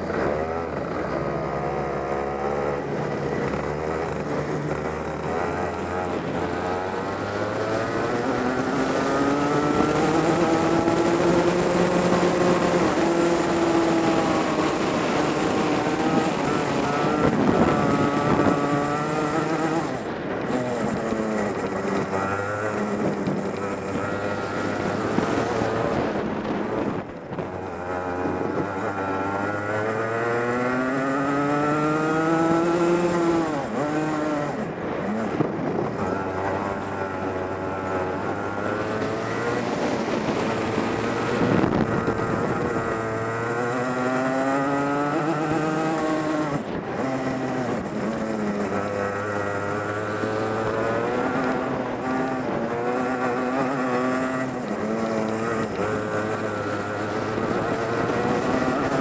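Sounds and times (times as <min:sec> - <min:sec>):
kart engine revving: 0:00.0 - 0:59.0.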